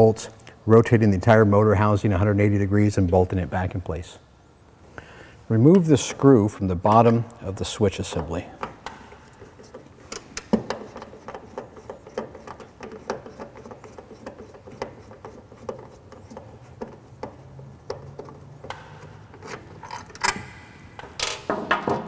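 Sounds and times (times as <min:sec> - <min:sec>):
screwdriver clicking and scraping: 0:08.2 - 0:20.4.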